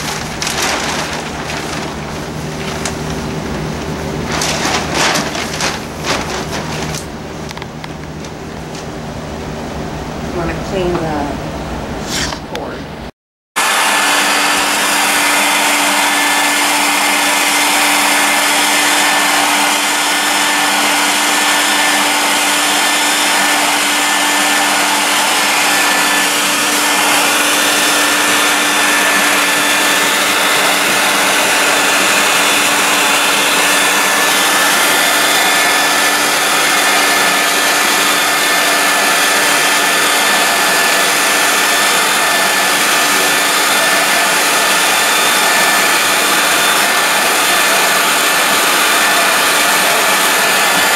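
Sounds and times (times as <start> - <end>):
vacuum motor drone: 13.6 - 50.9.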